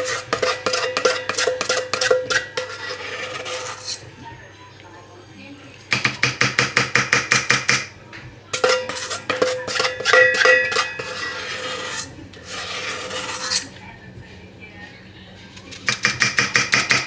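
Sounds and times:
spatula scraping metal bowl: 0.0 - 4.1, 8.5 - 13.8
metal bowl ringing: 8.6 - 11.4.

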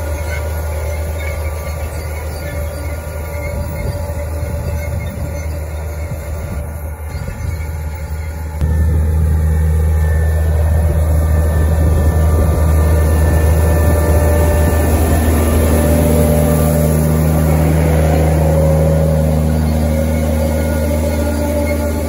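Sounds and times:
tractor engine running under load: 0.0 - 22.0.

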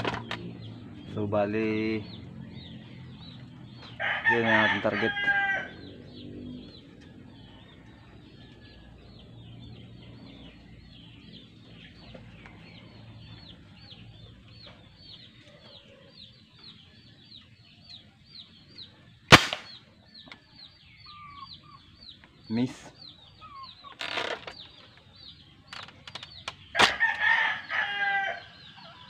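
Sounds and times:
rooster crowing: 3.9 - 5.9, 26.7 - 29.0
toy gun firing pop: 19.3 - 19.7.

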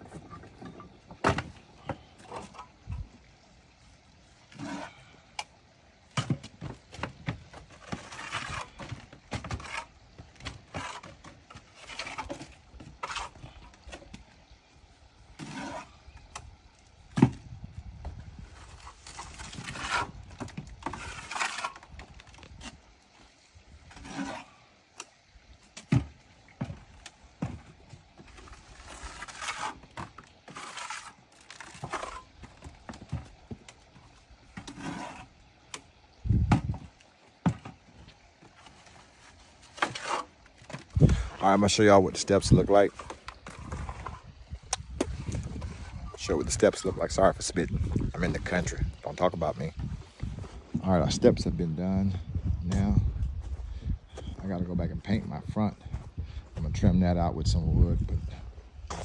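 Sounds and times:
stones scraping and knocking: 6.1 - 14.3, 15.4 - 16.0, 17.1 - 22.9, 23.9 - 24.6, 25.7 - 35.3, 36.3 - 51.5.

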